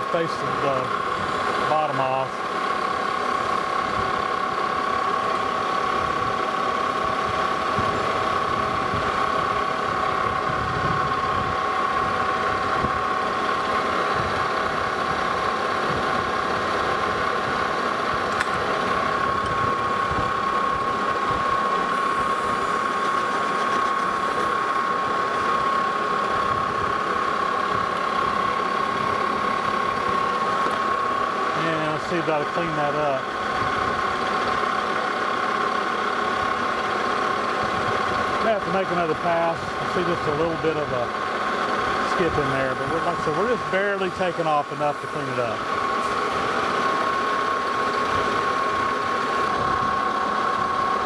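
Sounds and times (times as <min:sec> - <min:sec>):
metal lathe cutting with high whine: 0:00.0 - 0:51.0.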